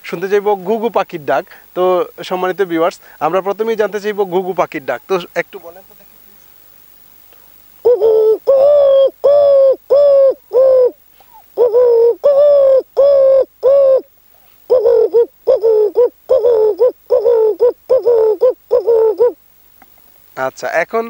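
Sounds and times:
man imitating dove cooing: 7.8s - 14.1s, 14.7s - 19.4s.

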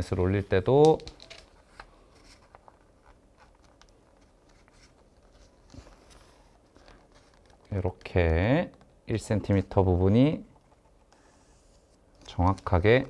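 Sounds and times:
paper crackling: 0.8s - 8.0s.

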